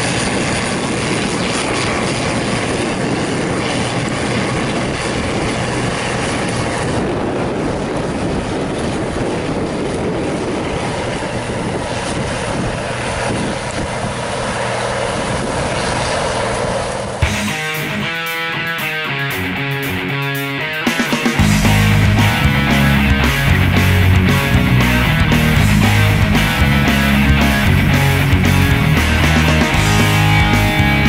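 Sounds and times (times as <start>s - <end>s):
tractor diesel engine under load: 21.4s - 31.0s.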